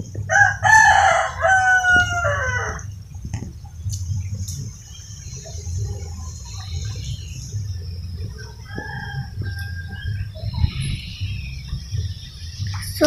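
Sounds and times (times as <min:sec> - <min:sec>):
chickens clucking: 0:00.0 - 0:13.0
steady high hiss: 0:00.0 - 0:13.0
rooster crowing: 0:00.3 - 0:02.9, 0:08.2 - 0:10.8.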